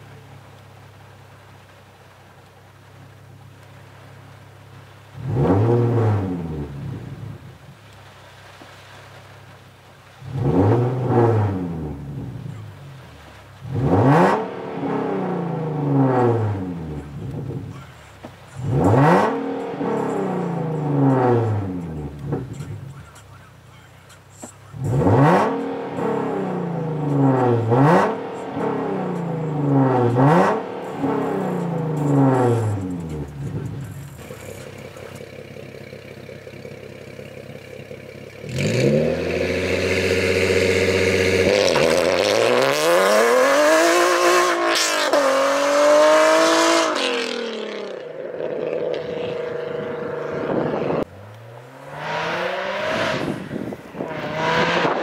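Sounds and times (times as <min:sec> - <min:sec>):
car engine idling: 0:00.0 - 0:42.8, 0:46.1 - 0:55.0
car approaching: 0:00.0 - 0:55.0
car engine revving: 0:04.8 - 0:09.2, 0:10.0 - 0:55.0
car accelerating through gears: 0:05.2 - 0:07.2, 0:10.3 - 0:12.6, 0:13.6 - 0:17.9, 0:18.5 - 0:23.2, 0:24.4 - 0:35.9, 0:38.2 - 0:55.0.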